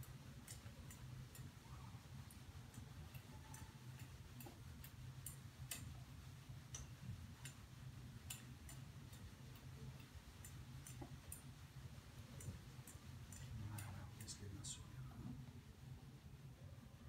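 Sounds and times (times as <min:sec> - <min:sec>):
faint light ticking: 0:00.0 - 0:17.0.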